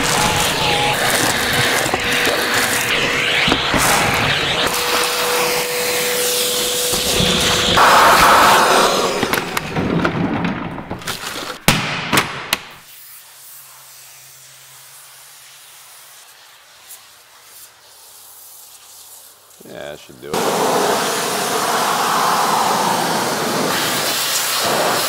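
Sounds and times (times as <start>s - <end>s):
rushing suction noise: 0.0s - 9.6s, 20.4s - 25.0s
vacuum whining: 0.0s - 10.2s, 20.3s - 25.0s.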